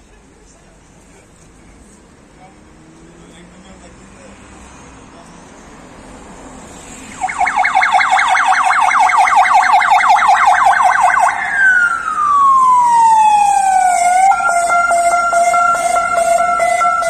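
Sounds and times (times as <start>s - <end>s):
electronic siren yelp and wail: 7.1s - 17.0s.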